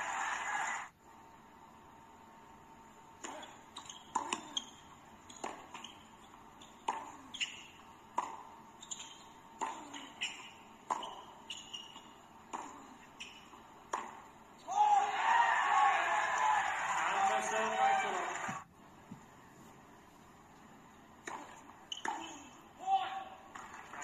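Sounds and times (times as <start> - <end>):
ball bounces: 3.2 - 14.3, 21.2 - 22.5
shoes squeaking on court: 3.2 - 14.7, 21.3 - 22.7.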